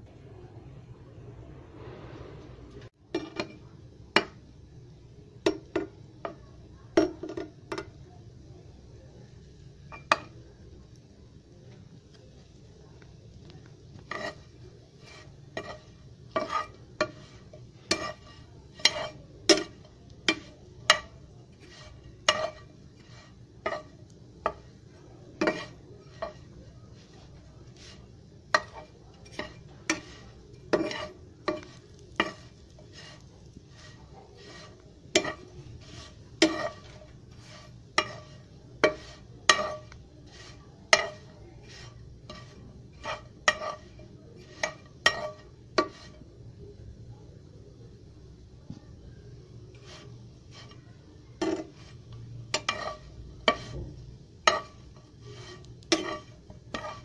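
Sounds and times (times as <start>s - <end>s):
bread frying in oil: 1.7s - 57.0s
metal spoon scraping frying pan: 9.8s - 10.4s, 13.9s - 46.3s, 49.6s - 50.8s, 51.4s - 57.0s.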